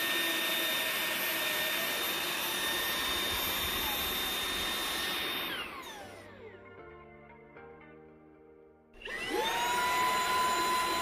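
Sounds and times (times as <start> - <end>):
stick vacuum running: 0.0 - 6.6, 9.0 - 11.0.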